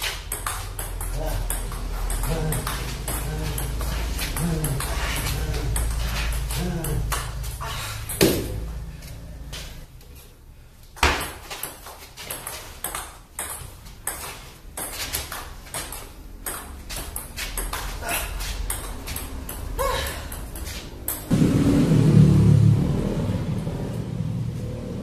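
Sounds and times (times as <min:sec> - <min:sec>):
table tennis ball hits: 0:00.0 - 0:07.4, 0:08.0 - 0:08.7, 0:11.0 - 0:18.0, 0:18.6 - 0:21.3
low noise: 0:20.9 - 0:25.0.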